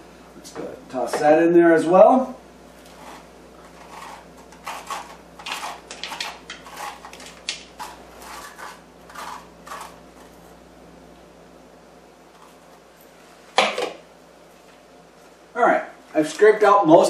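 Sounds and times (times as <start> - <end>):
scraping squash pulp: 2.8 - 10.6.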